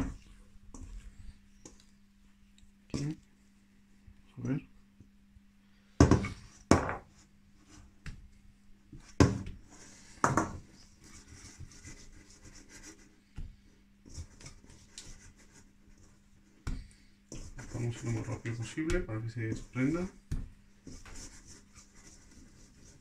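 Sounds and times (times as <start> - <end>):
faint steady hum: 0.0 - 23.0
hand scraping dough in steel bowl: 17.3 - 20.3.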